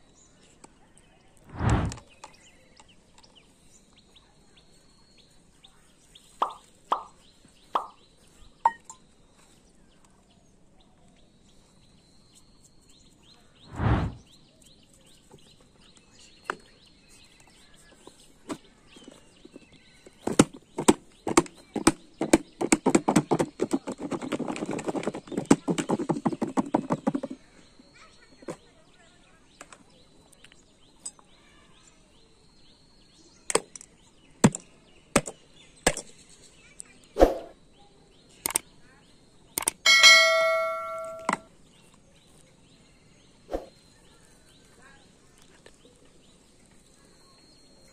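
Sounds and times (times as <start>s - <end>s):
low thud: 1.5s - 2.0s, 13.7s - 14.2s.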